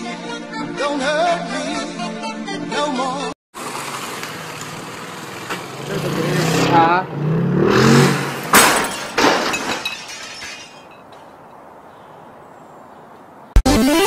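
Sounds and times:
scooter crashing into wall: 7.7s - 10.7s
debris clattering: 8.0s - 11.3s
plastic shattering: 8.4s - 11.0s.

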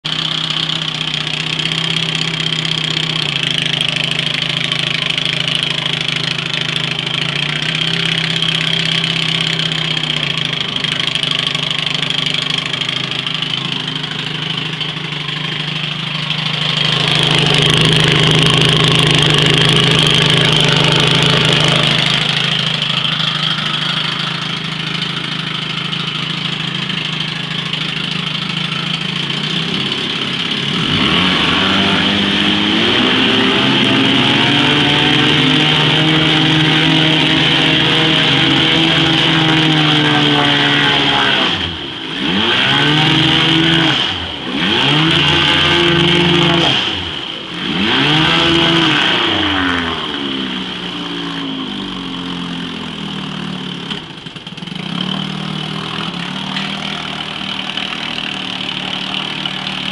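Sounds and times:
outboard motor idling and revving: 0.0s - 59.9s.

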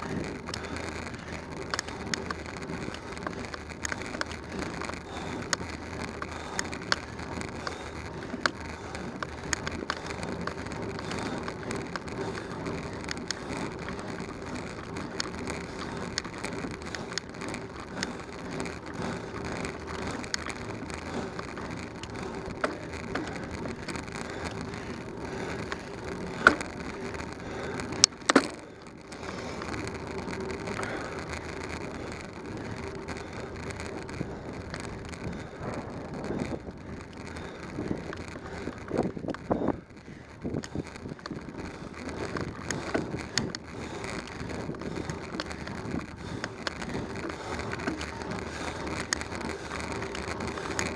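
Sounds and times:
bicycle tyre and wind noise: 0.0s - 50.9s
small rattling clicks: 0.0s - 50.9s.

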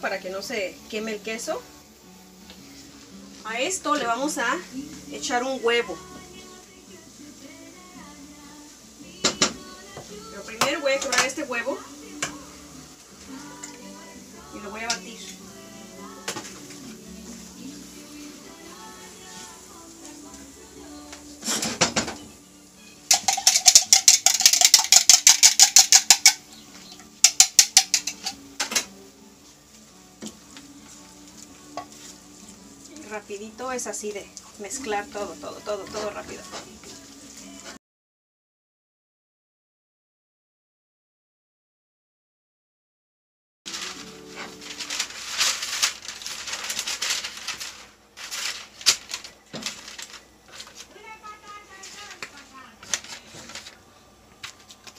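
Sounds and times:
fork beating egg in glass: 23.1s - 26.4s
parchment paper crinkling: 43.7s - 53.8s.

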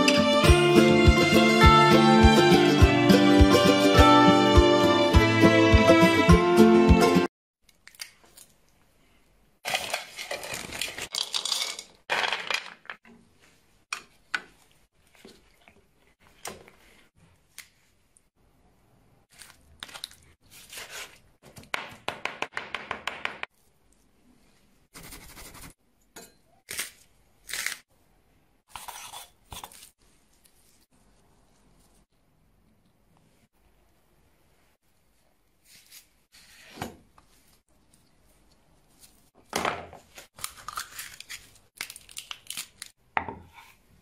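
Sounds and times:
tearing or crinkling: 9.6s - 12.0s, 40.2s - 43.0s.

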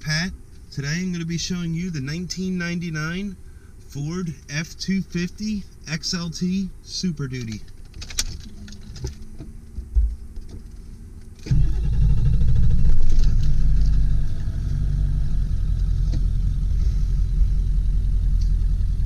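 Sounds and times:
diesel engine idling: 8.4s - 19.0s
diesel truck engine starting: 8.4s - 19.0s.

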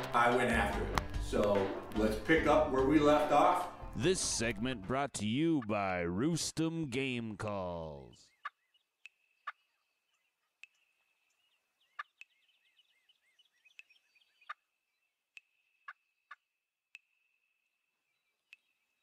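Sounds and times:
distant wild turkeys calling: 8.2s - 19.0s.

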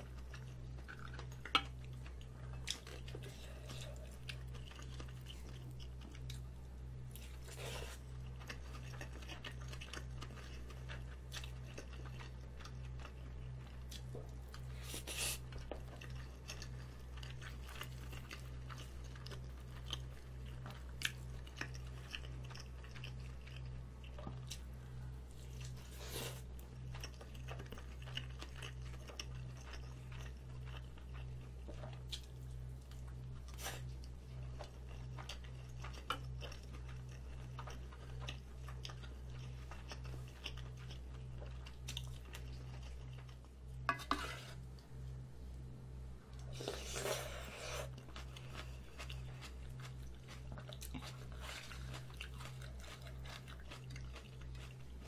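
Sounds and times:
person chewing: 0.0s - 44.8s, 46.3s - 55.0s
low hum: 0.0s - 55.0s.

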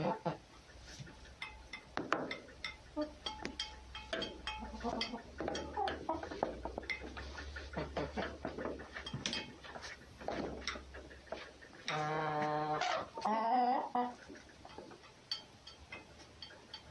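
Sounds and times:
light tapping and scuffling: 0.6s - 13.3s, 14.0s - 16.9s
squeaky animal calls: 11.9s - 14.2s.

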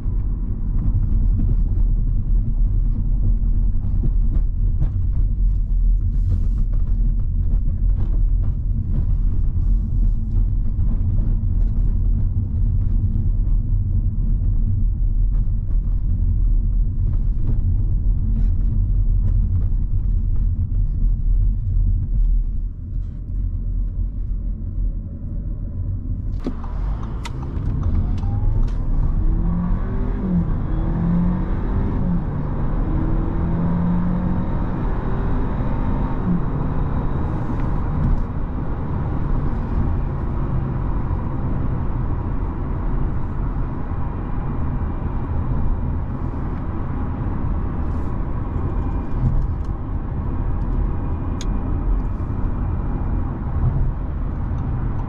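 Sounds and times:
road and tyre noise: 0.0s - 55.0s
car engine accelerating and upshifting: 26.2s - 55.0s.

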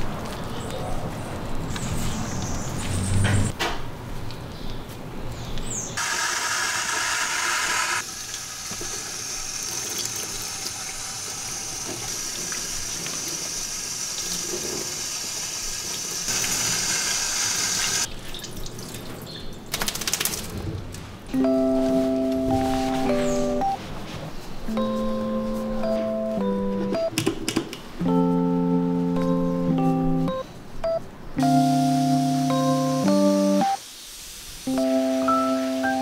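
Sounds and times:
shower hose spraying water: 6.0s - 18.1s, 33.2s - 36.0s.

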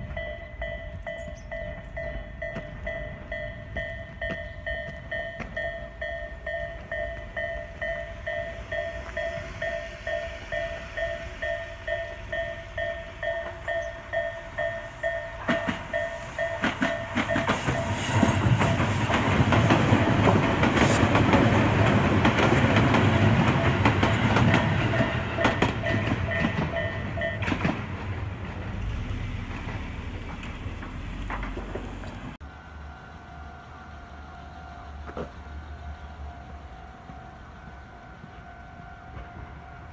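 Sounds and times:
level-crossing warning bell ringing: 0.0s - 27.8s, 32.4s - 39.9s
train wheels clattering over rail joints: 14.6s - 32.4s.

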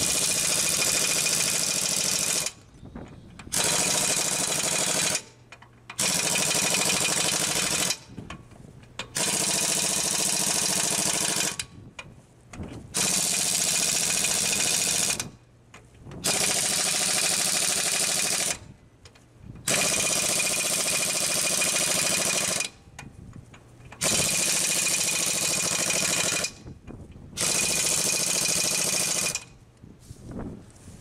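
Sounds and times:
impact wrench hammering: 3.4s - 8.1s, 9.0s - 11.6s, 16.2s - 18.6s, 19.7s - 22.8s, 23.9s - 26.7s, 27.4s - 29.5s.

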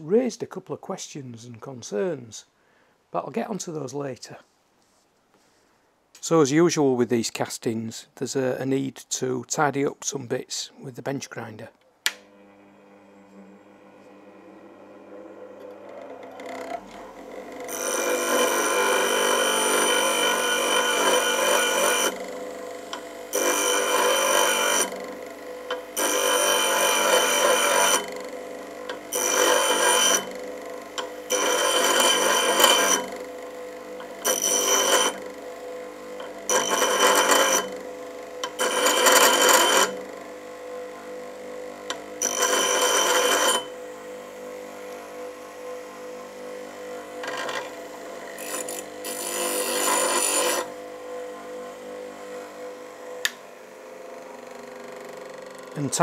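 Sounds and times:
bench grinder grinding metal: 12.1s - 56.0s
grinder wheel humming: 12.1s - 56.0s.

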